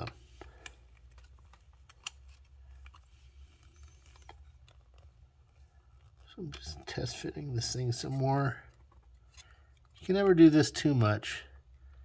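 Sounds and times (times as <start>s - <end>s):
plastic parts clicking together: 0.0s - 6.2s.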